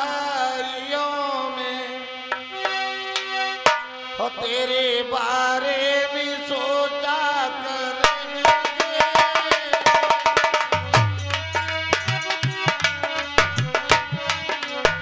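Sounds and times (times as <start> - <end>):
man singing a long note: 4.2 - 9.9
hand drum fast rhythm: 8.1 - 15.0.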